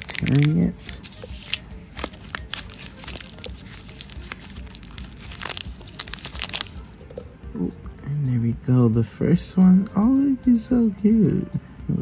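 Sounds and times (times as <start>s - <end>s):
plastic wrapper crinkling: 0.0s - 7.2s.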